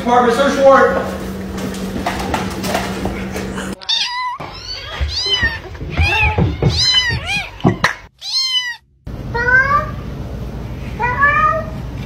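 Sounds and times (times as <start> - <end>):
kitten mewing: 3.7 - 8.8.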